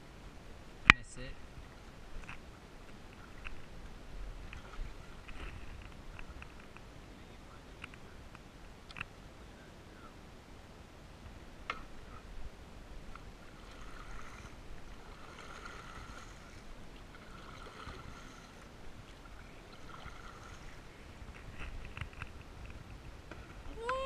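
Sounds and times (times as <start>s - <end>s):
paddle splashing through water: 2.4s - 6.7s, 13.0s - 23.9s.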